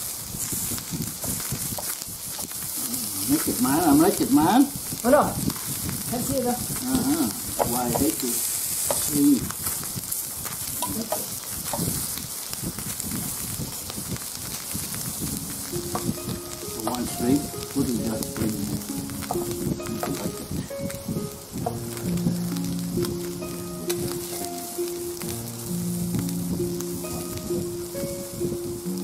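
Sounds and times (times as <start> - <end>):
shrimp sizzling on a grill: 0.0 - 29.0
faint steady musical tones: 3.0 - 4.8, 14.9 - 29.0.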